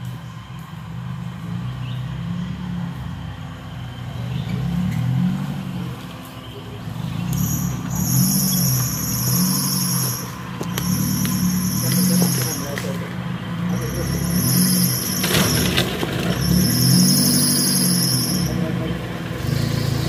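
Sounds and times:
engine revving: 3.8s - 6.1s, 6.8s - 20.0s.

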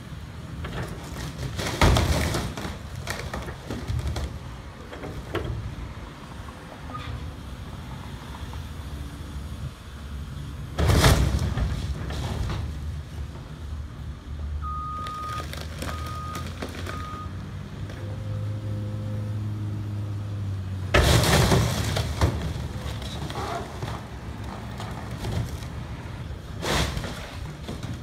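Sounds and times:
fiberglass crunching: 1.0s - 4.5s
excavator diesel engine: 11.5s - 28.0s.

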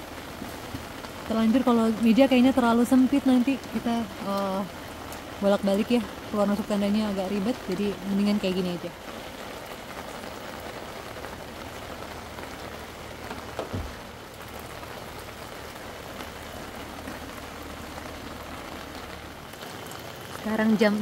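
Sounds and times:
heavy rain falling: 0.0s - 21.0s
low thump: 13.6s - 14.0s.

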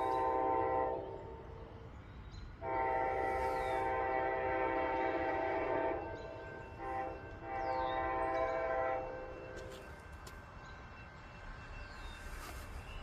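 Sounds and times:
locomotive air horn blasts: 0.0s - 1.2s, 2.6s - 6.2s, 6.8s - 9.6s.

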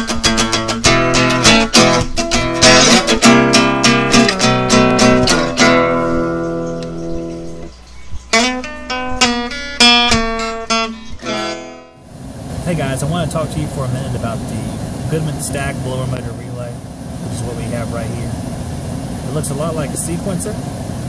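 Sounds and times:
strummed acoustic guitar: 0.0s - 7.7s, 8.3s - 16.5s.

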